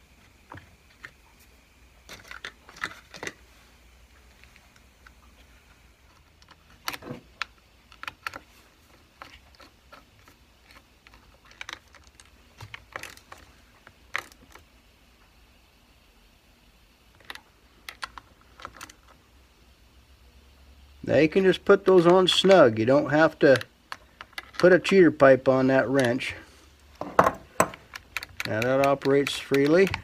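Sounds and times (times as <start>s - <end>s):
wrench clicking on metal nuts: 27.1s - 30.0s.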